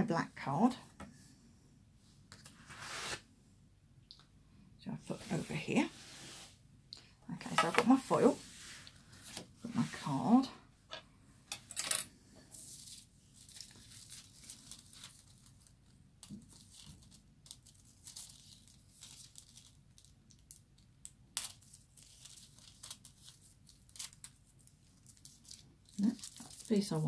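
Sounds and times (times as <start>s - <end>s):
foil crinkling and tearing: 13.4s - 15.7s, 16.4s - 20.6s, 21.4s - 27.0s.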